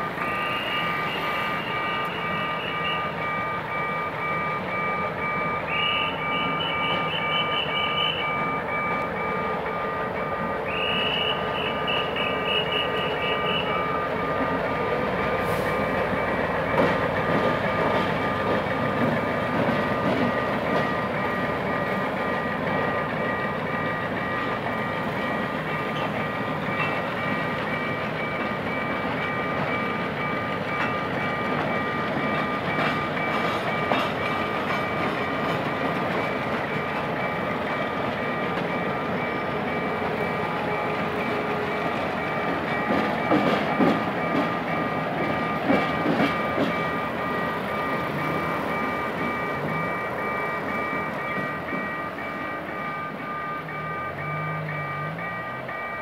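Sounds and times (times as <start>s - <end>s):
diesel locomotive rumbling: 0.0s - 56.0s
level crossing signal beeping: 0.0s - 56.0s
passenger coaches rolling by: 0.0s - 56.0s.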